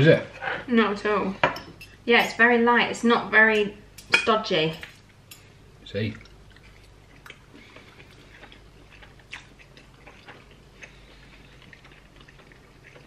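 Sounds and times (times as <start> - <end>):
soft chewing: 4.8 - 13.0.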